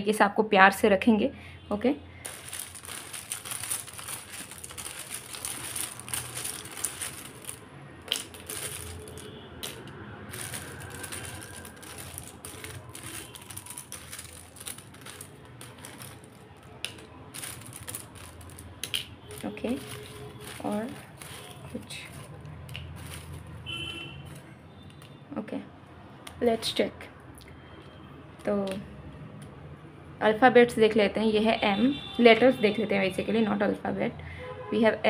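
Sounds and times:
paper rustling: 2.2s - 24.5s
plastic letters clattering: 2.2s - 25.2s.

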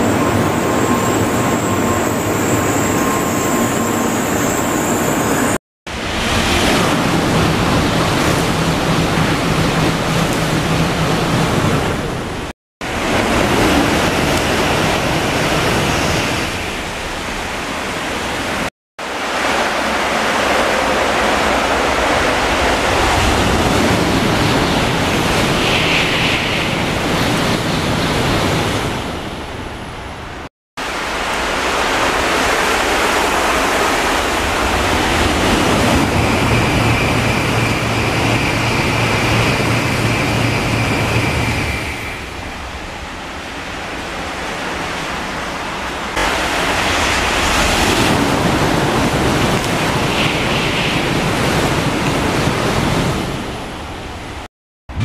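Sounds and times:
steady high tone: 0.0s - 5.6s
high-speed train rushing past: 0.0s - 55.0s.

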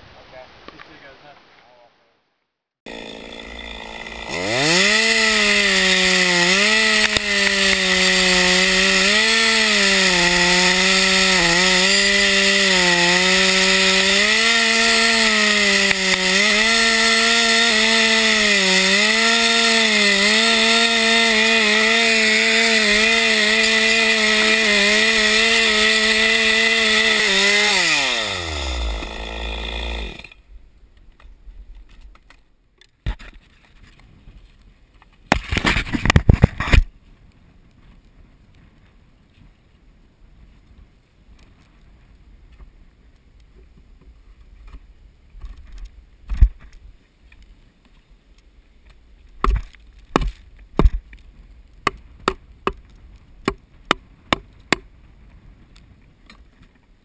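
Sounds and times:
chainsaw cutting wood: 2.9s - 30.5s, 35.3s - 36.9s.

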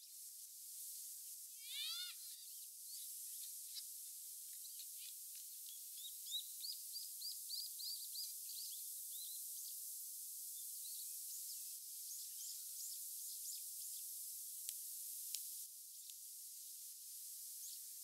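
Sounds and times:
steady high outdoor hiss: 0.0s - 18.0s
songbird chirping: 1.6s - 9.8s.

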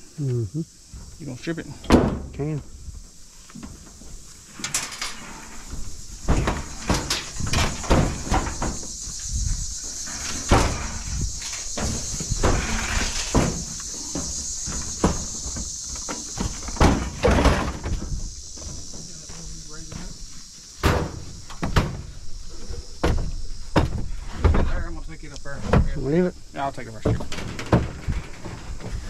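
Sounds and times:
sheet metal clunks and scrapes: 4.5s - 8.9s, 9.8s - 20.2s, 27.0s - 29.0s.

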